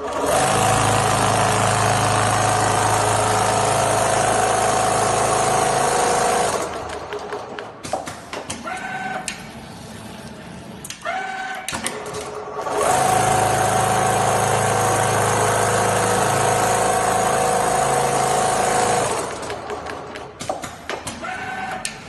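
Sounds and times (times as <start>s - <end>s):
sewing machine stitching hum: 0.0s - 7.6s, 11.9s - 20.1s.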